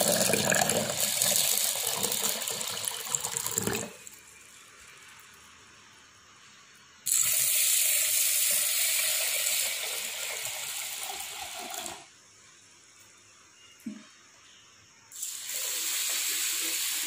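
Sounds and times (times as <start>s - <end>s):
water pouring into a steel pot: 0.0s - 4.1s, 7.1s - 12.1s.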